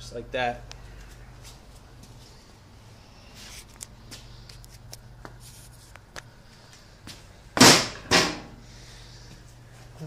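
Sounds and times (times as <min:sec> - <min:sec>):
steady low hum: 0:00.0 - 0:10.0
sharp loud knock: 0:07.6 - 0:08.4.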